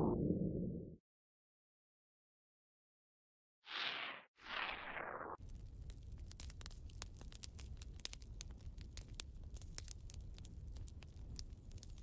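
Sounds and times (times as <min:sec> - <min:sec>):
sharp crackling clicks: 0:05.4 - 0:12.0.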